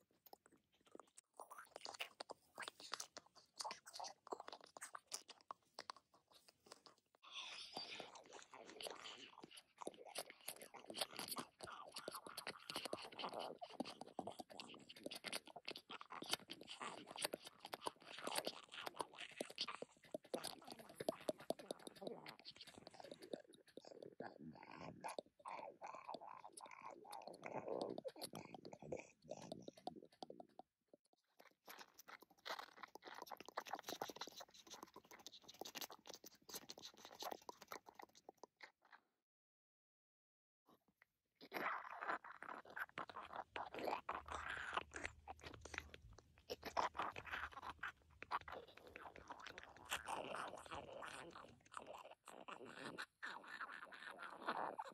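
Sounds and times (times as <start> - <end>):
wet squishy clicks and crackles: 0.0 - 7.1, 31.4 - 38.6
wet clicks and crunches: 31.4 - 38.7, 41.4 - 54.9.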